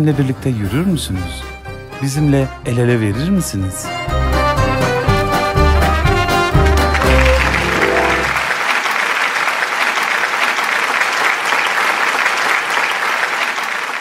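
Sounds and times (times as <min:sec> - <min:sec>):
held note of music: 0:03.8 - 0:08.5
audience applauding: 0:04.7 - 0:14.0.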